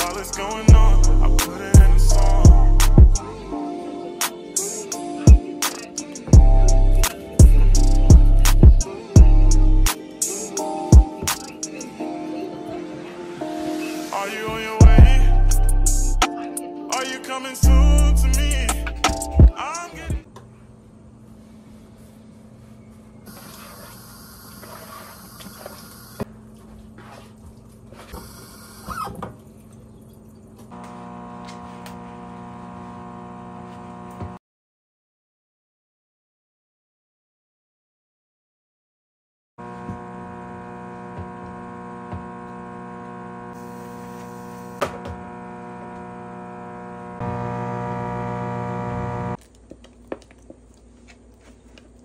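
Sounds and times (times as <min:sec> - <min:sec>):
electrical hum: 0:39.6 - 0:49.4
tap shutting off click: 0:41.0 - 0:43.2, 0:44.2 - 0:45.3.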